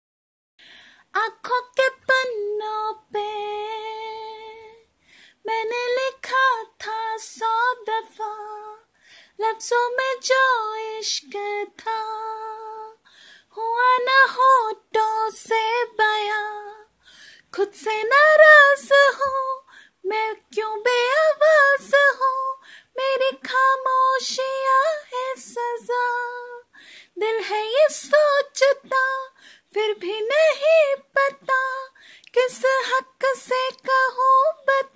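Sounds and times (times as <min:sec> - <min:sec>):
woman singing unaccompanied: 0:01.1 - 0:34.9.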